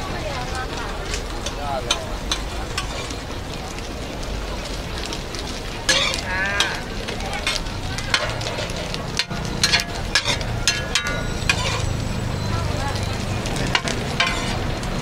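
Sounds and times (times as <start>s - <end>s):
background chatter: 0.0s - 15.0s
frying sizzle: 0.0s - 15.0s
metal spatula scraping steel pan: 1.9s - 3.2s, 5.9s - 12.2s, 13.7s - 14.7s.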